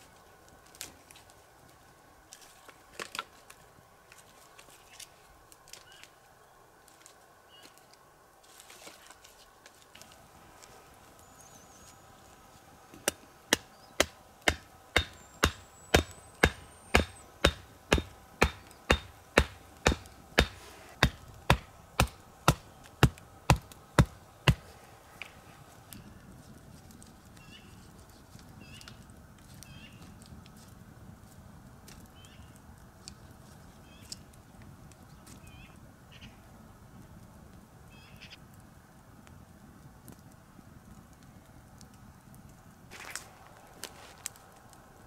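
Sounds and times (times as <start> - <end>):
axe chopping wood: 13.0 - 24.7.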